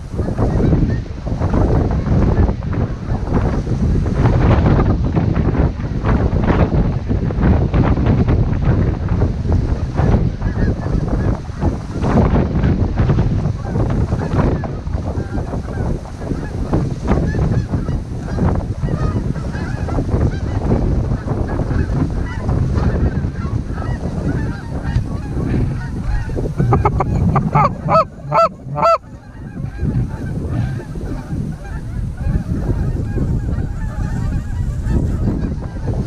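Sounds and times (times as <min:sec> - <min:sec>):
wind buffeting microphone: 0:00.0 - 0:36.0
geese honking: 0:17.3 - 0:36.0.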